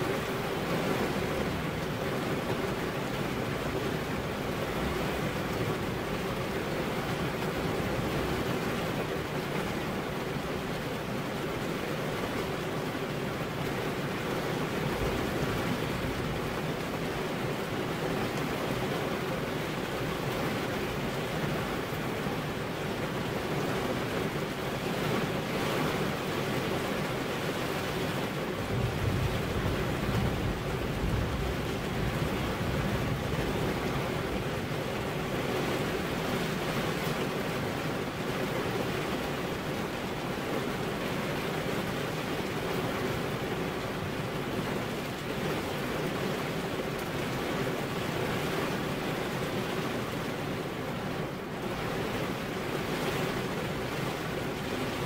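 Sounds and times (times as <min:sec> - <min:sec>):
heavy rain: 0:00.0 - 0:55.0.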